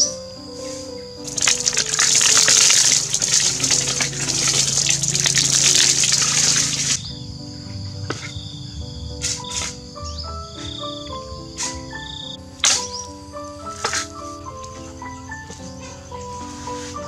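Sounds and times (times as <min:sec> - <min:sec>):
background music: 0:00.0 - 0:17.0
water pouring into tank: 0:01.3 - 0:07.0.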